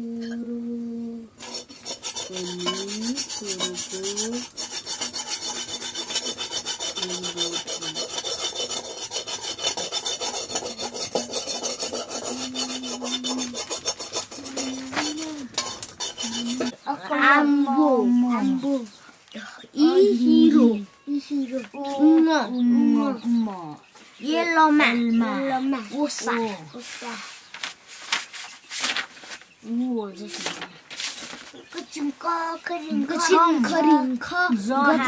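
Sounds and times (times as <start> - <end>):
rhythmic rubbing by hand: 0.8 - 18.9.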